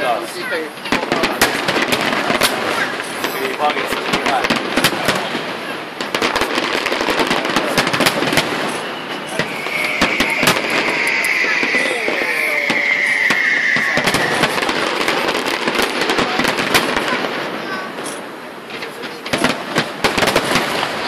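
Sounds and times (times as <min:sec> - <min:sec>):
fireworks popping and crackling: 0:00.0 - 0:21.0
high hiss falling in pitch: 0:09.3 - 0:15.5.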